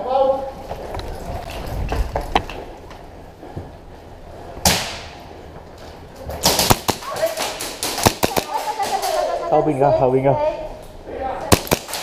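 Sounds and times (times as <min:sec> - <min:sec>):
footsteps: 0:00.5 - 0:04.5
sharp crack with ringing tail: 0:06.4 - 0:09.0, 0:11.5 - 0:12.0.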